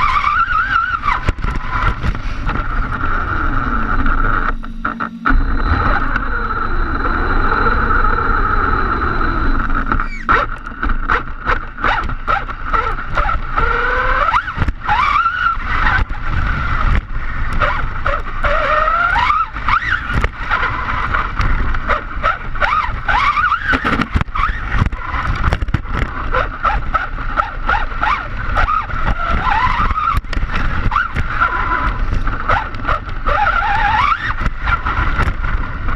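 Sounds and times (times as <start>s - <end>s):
electric motor whine: 0.0s - 35.9s
low rushing noise: 0.9s - 13.6s.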